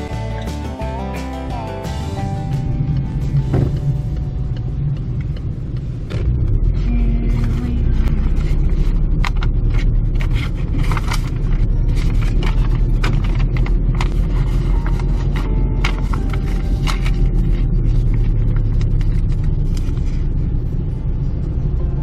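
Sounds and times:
car engine and tyre rumble: 0:00.0 - 0:22.0.

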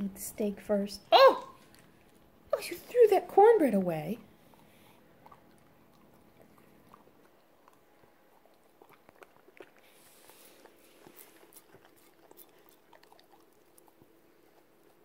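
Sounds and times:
dog chewing: 0:01.6 - 0:15.0
dog licking a plate: 0:04.6 - 0:15.0.

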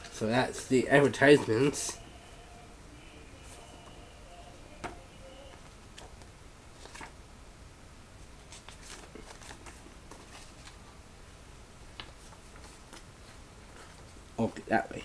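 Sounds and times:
paper rustling and clicking: 0:06.0 - 0:07.2, 0:08.4 - 0:10.8.

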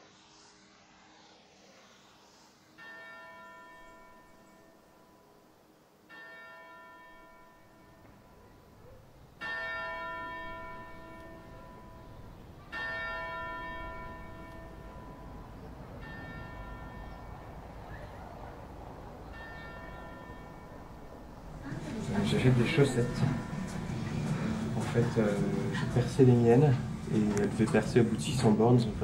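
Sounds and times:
church bell tolling: 0:06.1 - 0:26.7
low rumble: 0:13.6 - 0:29.0.

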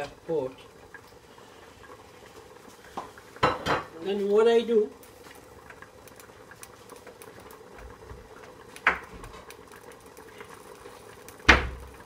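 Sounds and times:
tomatoes crackling in oil: 0:00.0 - 0:12.0
kitchenware clink: 0:03.4 - 0:03.9.

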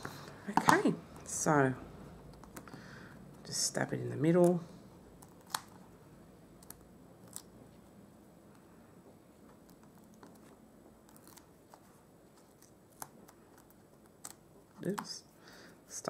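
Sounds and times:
small clicks of peeling foam pads: 0:09.4 - 0:15.2.

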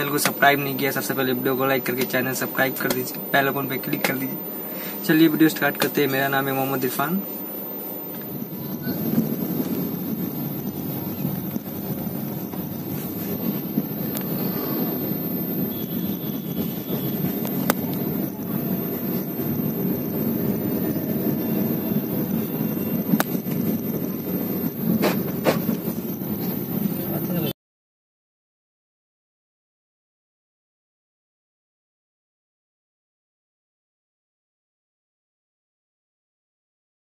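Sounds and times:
car engine and road noise: 0:00.0 - 0:27.5.

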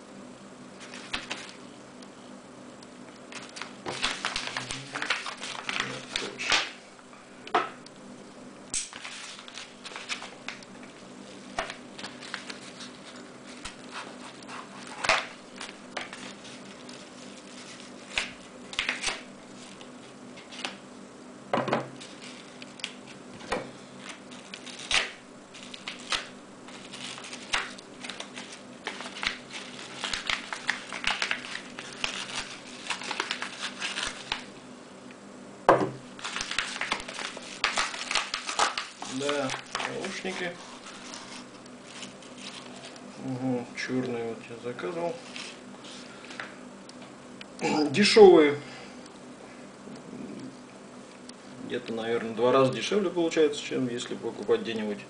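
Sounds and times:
paper crackling and rustling: 0:00.8 - 0:01.7, 0:03.3 - 0:06.8, 0:08.8 - 0:20.8, 0:22.0 - 0:34.5, 0:36.2 - 0:43.1, 0:44.8 - 0:46.5
scissors cutting paper envelope: 0:03.3 - 0:06.6, 0:11.5 - 0:20.8, 0:24.0 - 0:34.5, 0:36.2 - 0:43.0.

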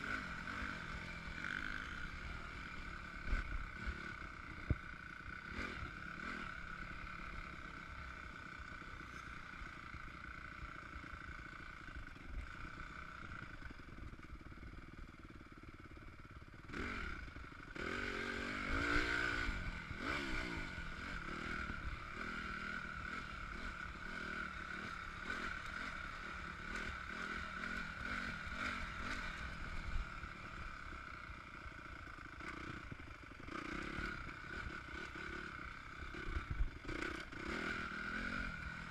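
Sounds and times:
motocross bike engine revving: 0:00.0 - 0:09.2, 0:16.6 - 0:30.9, 0:31.6 - 0:38.9.

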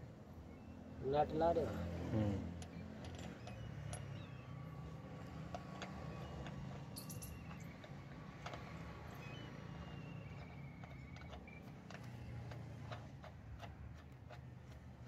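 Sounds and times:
metallic clicks of wheel nuts: 0:02.6 - 0:04.4, 0:10.2 - 0:15.0.

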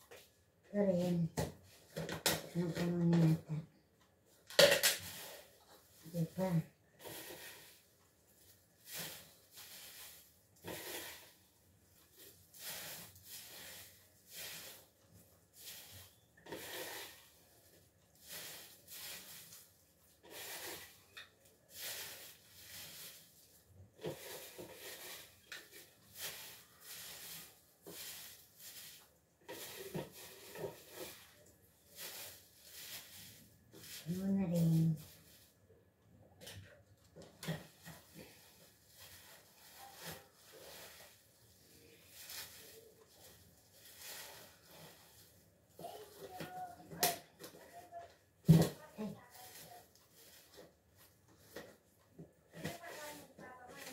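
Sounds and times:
garlic skins rustling: 0:08.7 - 0:35.7, 0:37.4 - 0:47.8, 0:49.2 - 0:53.9.

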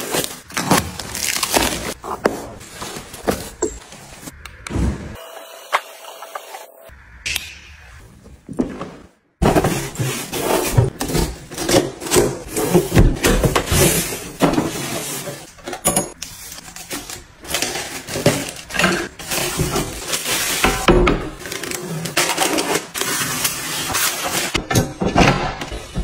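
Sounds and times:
plastic wrapping crinkling: 0:00.0 - 0:02.0.

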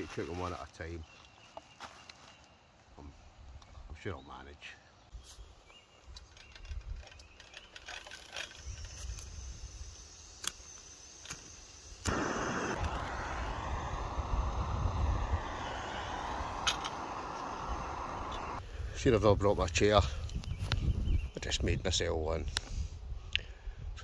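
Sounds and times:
gas burner hissing: 0:08.6 - 0:19.0
gas stove igniter clicks: 0:15.6 - 0:18.6.

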